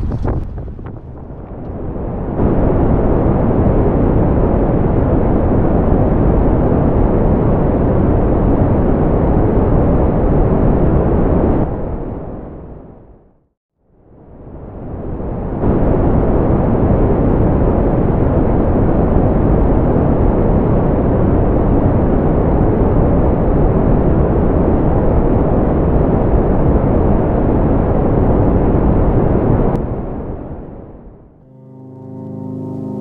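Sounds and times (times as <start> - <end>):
wind buffeting microphone: 0.0 - 12.0.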